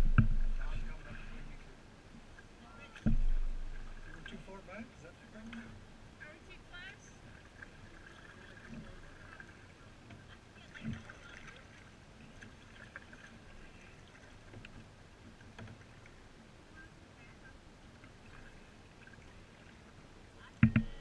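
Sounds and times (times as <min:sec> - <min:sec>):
paddle splashes: 0:00.0 - 0:21.0
water lapping: 0:00.0 - 0:21.0
faint small knocks: 0:03.0 - 0:04.1, 0:15.5 - 0:15.9, 0:20.6 - 0:21.0
sharp loud knock: 0:03.1 - 0:03.7.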